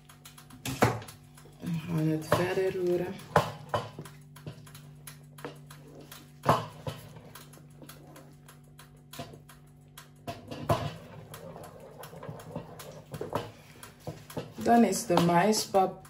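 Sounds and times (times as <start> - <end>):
wooden spoon scraping a pot: 5.4 - 8.4, 10.3 - 15.7.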